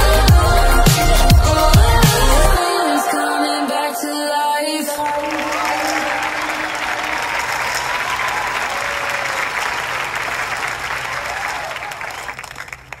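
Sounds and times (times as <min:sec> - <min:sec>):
crowd applauding: 0:04.9 - 0:13.0.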